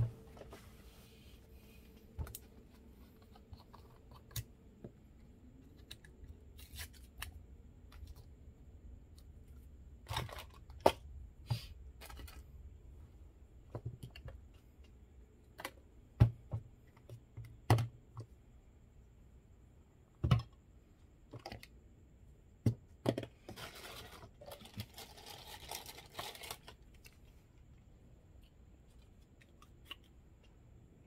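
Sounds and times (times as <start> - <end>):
plastic parts clicking and tapping: 22.6 - 23.7.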